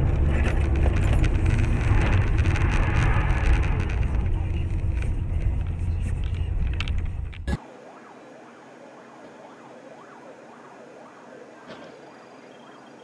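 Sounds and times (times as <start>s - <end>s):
vehicle road rumble: 0.0s - 13.0s
emergency vehicle siren: 7.5s - 13.0s.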